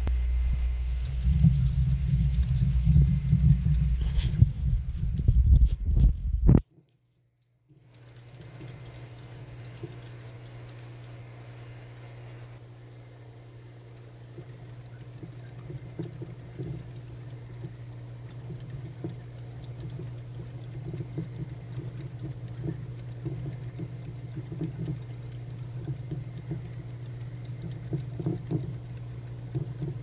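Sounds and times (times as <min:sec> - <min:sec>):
steady low hum: 0:00.0 - 0:30.0
hamster running in wooden wheel: 0:07.8 - 0:11.4, 0:13.9 - 0:30.0.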